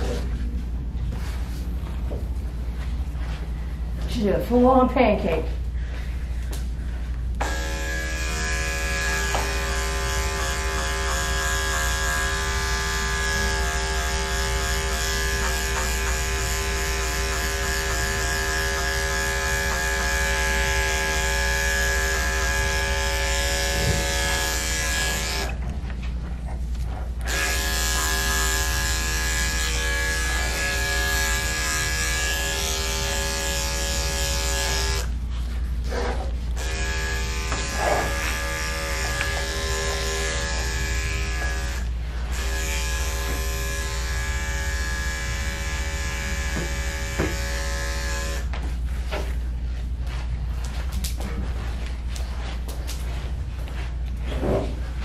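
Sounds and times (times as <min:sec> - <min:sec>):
electric clippers buzzing: 0:07.4 - 0:25.7, 0:26.9 - 0:35.2, 0:35.9 - 0:48.6.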